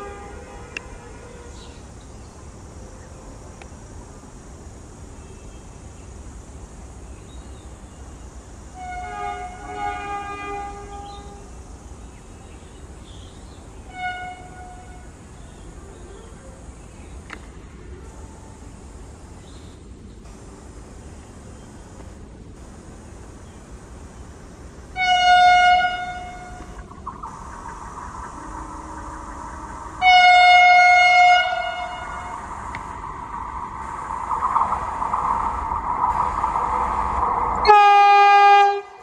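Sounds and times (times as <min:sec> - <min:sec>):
train air horn: 0:00.0 - 0:01.8, 0:08.8 - 0:11.5, 0:13.8 - 0:15.1, 0:24.9 - 0:26.8, 0:28.3 - 0:32.6, 0:37.6 - 0:39.0
low train rumble: 0:00.0 - 0:39.0.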